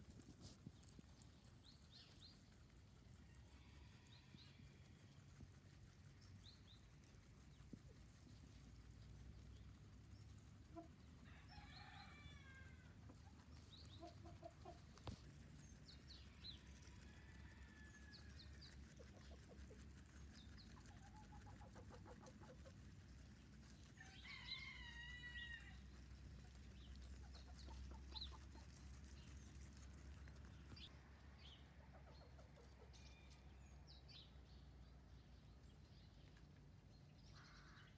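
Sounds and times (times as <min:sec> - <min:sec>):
chicken clucking: 0:11.8 - 0:15.5, 0:18.5 - 0:25.6, 0:26.3 - 0:33.1.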